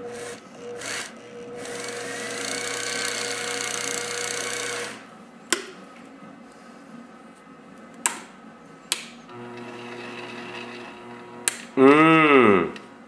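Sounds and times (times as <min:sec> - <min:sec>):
grinder motor whine: 0:00.0 - 0:05.0, 0:09.3 - 0:12.4.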